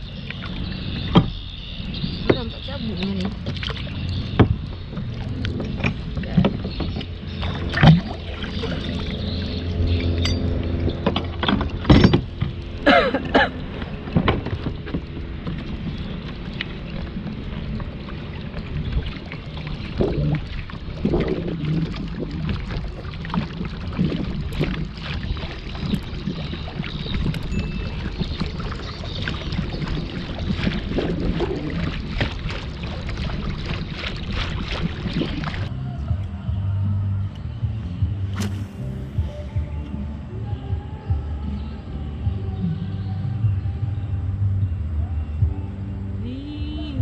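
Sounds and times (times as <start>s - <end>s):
steady low hum: 0.0s - 47.0s
steady water rumble: 0.0s - 47.0s
small splashes and knocks on hull: 0.3s - 9.2s, 13.7s - 35.7s.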